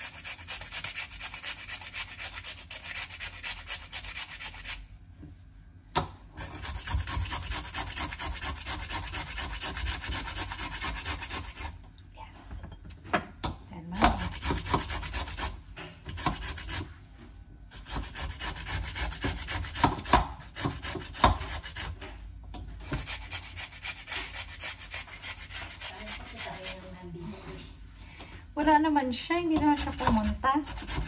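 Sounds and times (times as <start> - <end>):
potato grated on metal grater: 0.0 - 4.9, 6.4 - 11.8, 14.0 - 17.0, 17.7 - 22.1, 22.8 - 27.0, 29.4 - 31.0.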